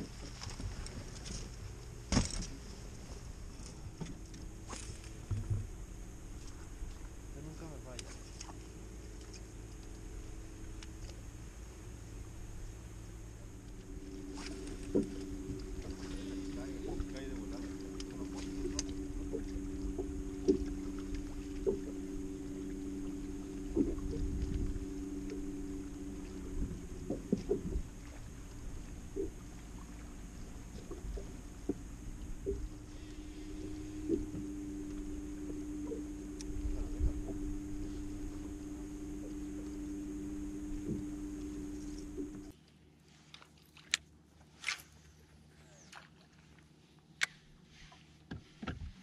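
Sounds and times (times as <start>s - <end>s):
low rumble: 0.0s - 42.6s
low electric hum: 0.0s - 47.9s
sharp knocks on boat: 23.7s - 25.5s.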